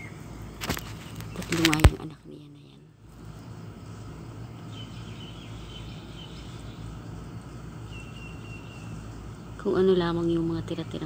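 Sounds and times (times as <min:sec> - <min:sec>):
bird chirping: 0:00.0 - 0:02.8, 0:03.4 - 0:11.0
low machine hum: 0:00.0 - 0:11.0.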